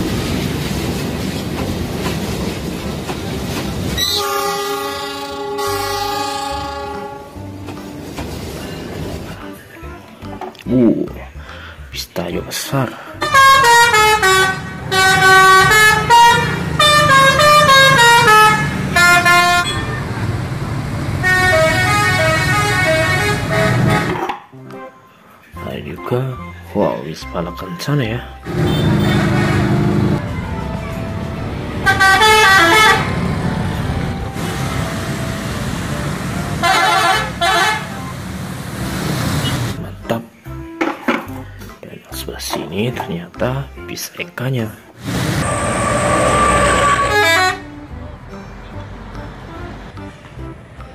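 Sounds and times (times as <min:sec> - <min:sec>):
bus engine running: 0:00.0 - 0:10.4, 0:13.2 - 0:24.2, 0:28.4 - 0:39.9, 0:45.0 - 0:50.9
multi-tone musical bus horn: 0:04.0 - 0:08.2, 0:13.0 - 0:20.3, 0:21.2 - 0:25.0, 0:28.4 - 0:38.4, 0:45.2 - 0:50.7.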